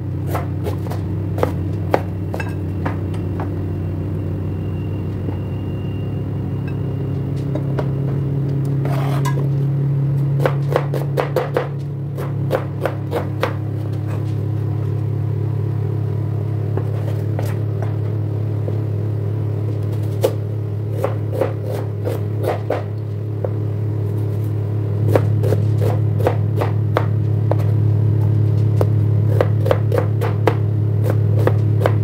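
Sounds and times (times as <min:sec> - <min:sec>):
steady low hum: 0:00.0 - 0:32.0
knife chopping on plastic board: 0:00.3 - 0:02.1, 0:10.4 - 0:13.6, 0:29.3 - 0:32.0
knife scraping board: 0:08.8 - 0:09.5, 0:12.2 - 0:14.4, 0:21.0 - 0:22.9, 0:24.1 - 0:26.7.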